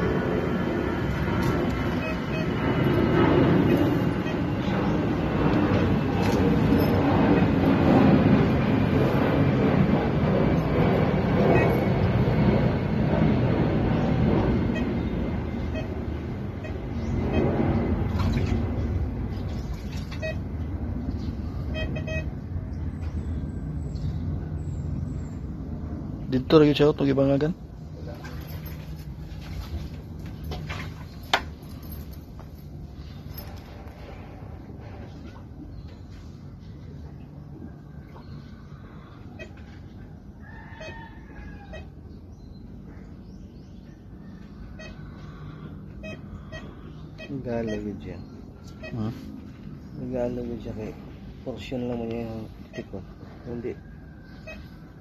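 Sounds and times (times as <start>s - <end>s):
low engine rumble: 0.0s - 55.0s
steady low hum: 0.0s - 55.0s
short beeps: 1.9s - 2.6s, 15.7s - 16.0s, 21.7s - 22.4s
rooster crowing: 40.1s - 42.1s.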